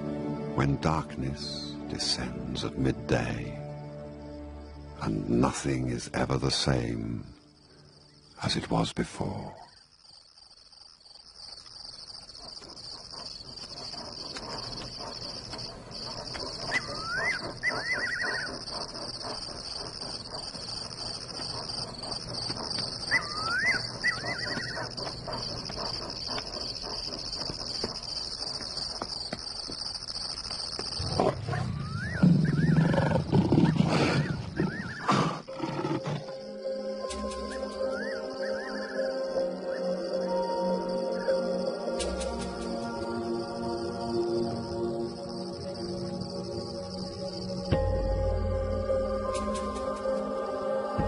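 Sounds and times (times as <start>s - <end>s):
crickets chirping: 0.0s - 51.0s
bird chirps: 11.6s - 28.6s
lion roaring: 31.0s - 36.3s.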